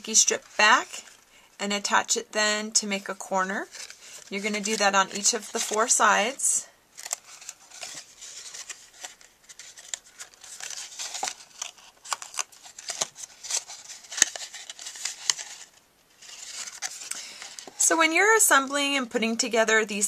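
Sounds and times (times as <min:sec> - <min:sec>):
cardstock rustling: 0:03.0 - 0:17.8.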